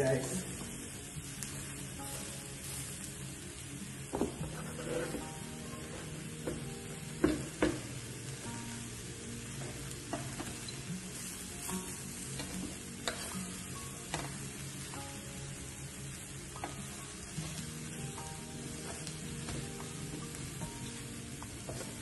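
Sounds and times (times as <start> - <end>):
food sizzling on a grill: 0.0 - 22.0.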